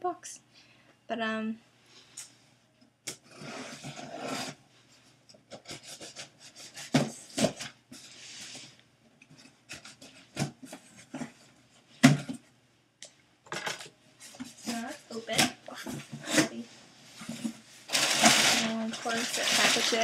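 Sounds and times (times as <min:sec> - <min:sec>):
cardboard and paper scraping and tearing: 0:15.8 - 0:20.0.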